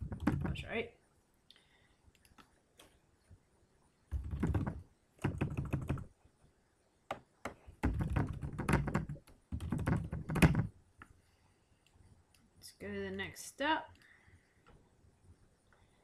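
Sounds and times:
typing on computer keyboard: 4.1 - 6.1, 7.8 - 10.7.

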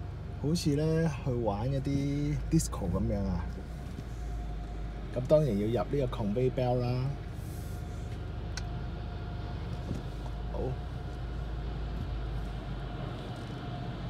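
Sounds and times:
car idling: 0.0 - 14.0.

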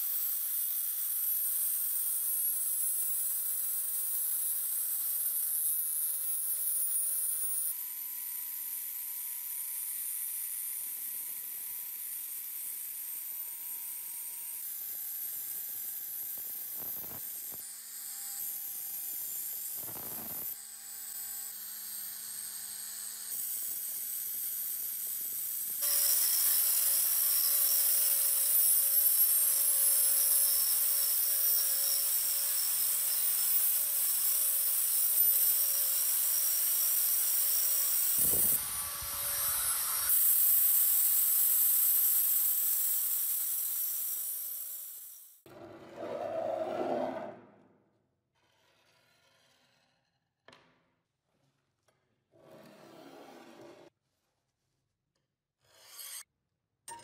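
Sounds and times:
angle grinder motor whine: 13.1 - 21.5, 38.1 - 40.1.

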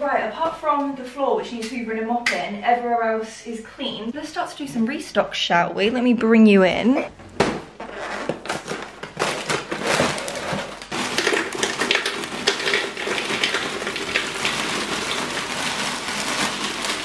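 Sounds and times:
box and bag knocks and rustles: 7.4 - 12.0
plastic bag crinkling: 7.8 - 17.0
cereal pouring into plastic dispenser: 8.4 - 17.0.

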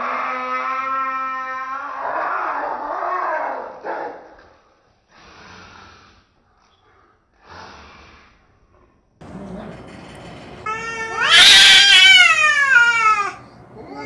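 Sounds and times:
cats yowling and fighting: 0.0 - 3.6, 10.6 - 14.0.

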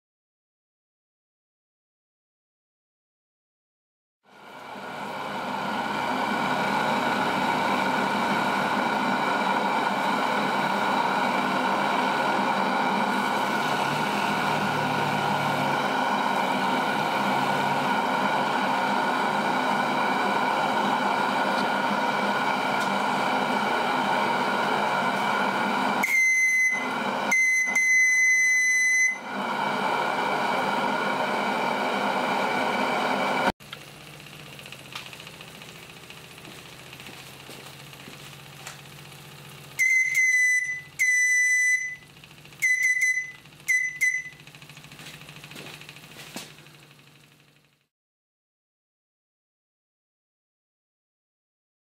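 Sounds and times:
steam whistle blasts: 26.0 - 29.3, 39.8 - 44.4.

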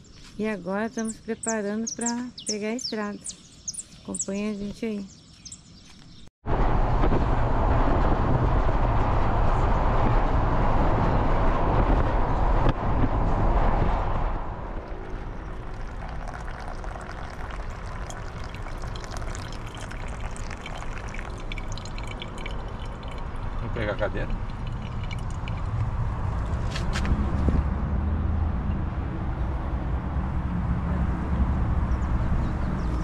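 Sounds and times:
road noise: 0.0 - 33.0
low engine hum: 6.5 - 33.0
wind rushing past microphone: 6.5 - 33.0.

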